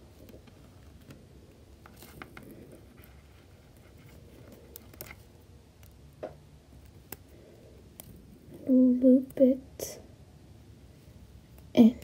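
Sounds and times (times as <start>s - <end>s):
low steady hum: 0.0s - 12.0s
soft ticks and rubbing scratches: 0.1s - 6.0s.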